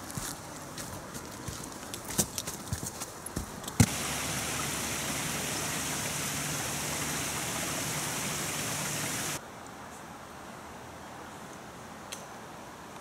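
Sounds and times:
brook running over rocks: 1.1s - 9.4s.

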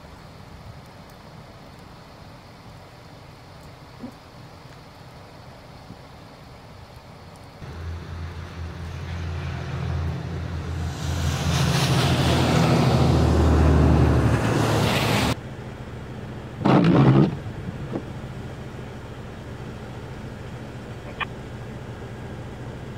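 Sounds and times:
tyre hiss on snowy road: 0.0s - 15.4s
vehicle engine hum: 7.4s - 22.9s.

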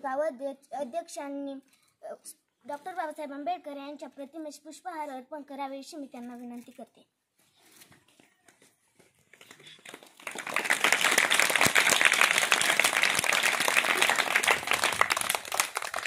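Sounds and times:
children clapping: 9.3s - 16.0s.

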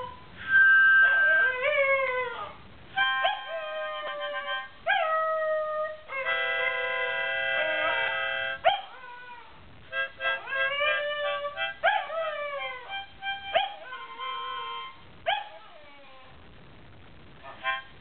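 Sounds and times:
dog howling: 1.0s - 2.6s, 10.4s - 16.3s
harmonica chord: 3.0s - 4.7s, 6.2s - 8.6s, 9.9s - 10.8s.

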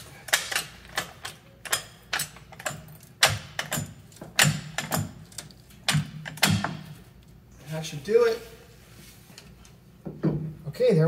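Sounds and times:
car jack clicking: 0.2s - 6.9s.

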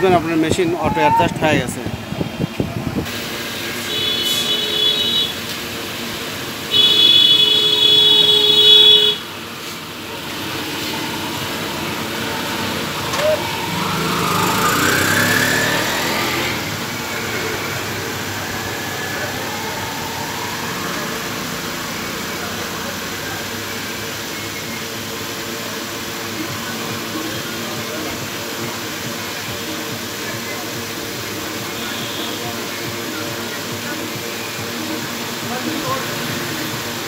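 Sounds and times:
high-pitched machine whine: 9.2s - 37.0s
sound rising in pitch: 9.4s - 25.4s.

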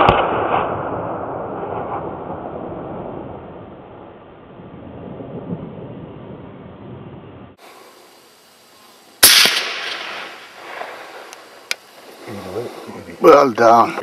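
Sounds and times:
rifle shot echoing: 0.0s - 3.4s, 9.2s - 11.8s.

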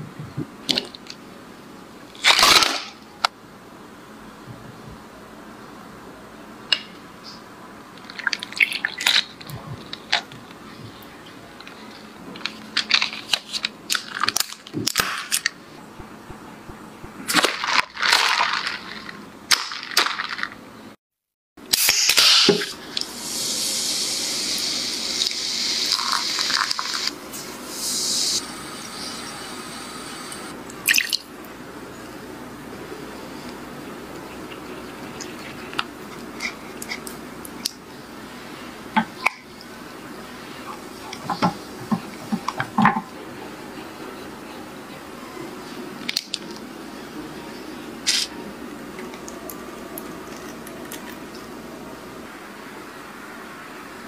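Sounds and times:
steady hiss: 21.7s - 30.6s.

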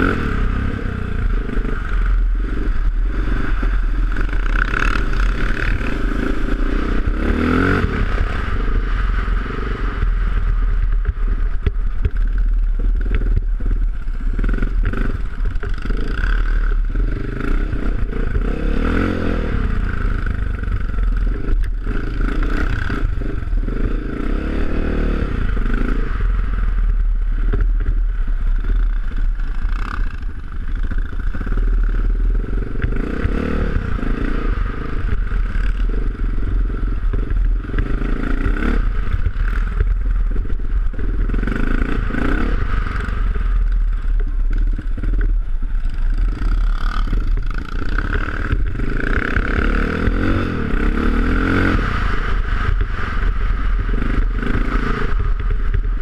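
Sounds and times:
dirt bike engine revving: 0.0s - 12.3s, 14.3s - 26.6s, 28.6s - 43.7s, 46.0s - 56.0s.

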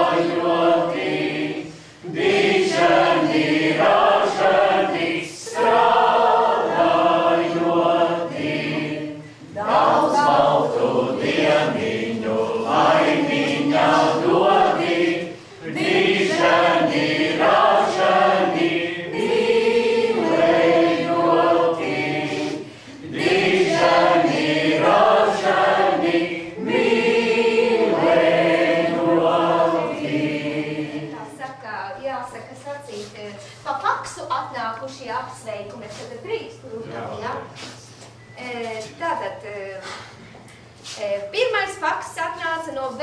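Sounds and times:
women singing unaccompanied: 2.1s - 31.6s.

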